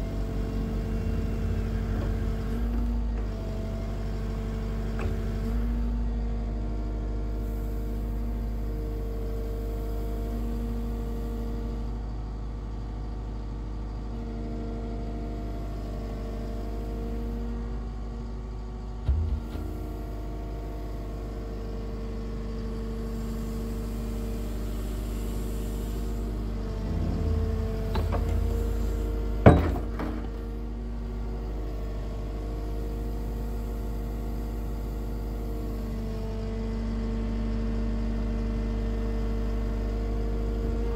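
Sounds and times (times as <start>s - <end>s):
excavator diesel engine running: 0.0s - 40.9s
short clunk: 19.0s - 19.8s, 26.8s - 30.5s
sharp metal knock: 29.4s - 30.3s.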